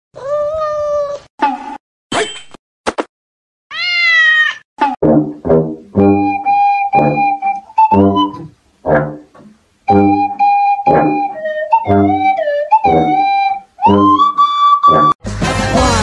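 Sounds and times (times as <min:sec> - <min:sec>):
cat meowing: 0:00.2 - 0:01.3, 0:03.7 - 0:04.6.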